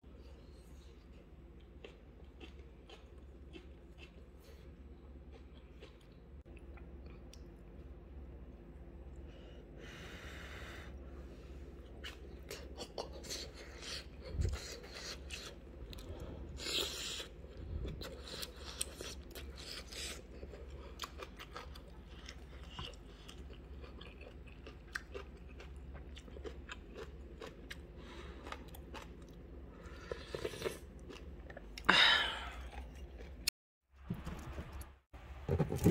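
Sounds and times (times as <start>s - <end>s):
person chewing food: 0.2s - 7.6s, 11.7s - 33.5s.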